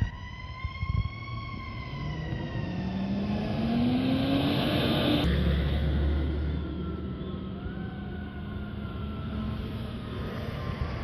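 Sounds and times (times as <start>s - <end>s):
siren wailing: 0.0s - 11.0s
truck engine revving: 1.6s - 7.6s.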